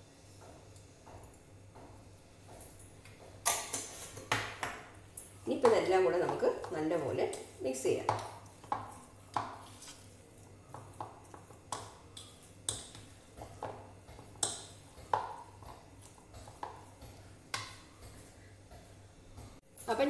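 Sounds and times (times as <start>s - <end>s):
hand mixing batter in bowl: 5.4s - 19.6s.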